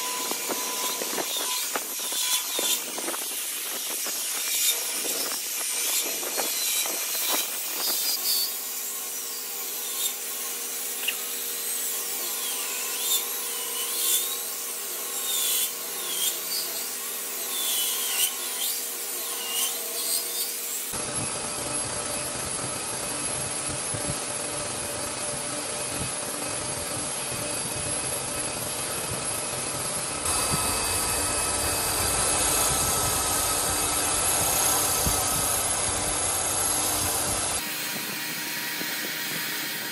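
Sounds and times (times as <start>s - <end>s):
belt sander whining: 0.0s - 18.8s, 20.9s - 39.9s.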